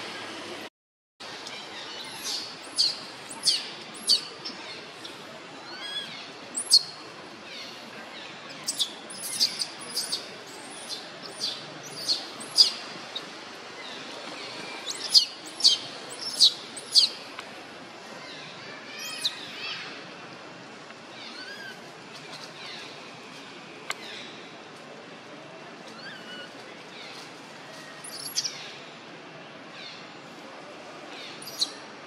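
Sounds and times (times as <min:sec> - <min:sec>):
baby monkey squeaking: 0:08.6 - 0:12.7, 0:14.8 - 0:17.1.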